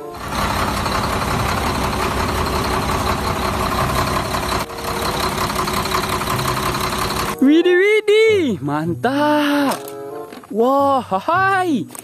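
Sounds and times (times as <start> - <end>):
truck diesel engine idling: 0.0 - 7.4.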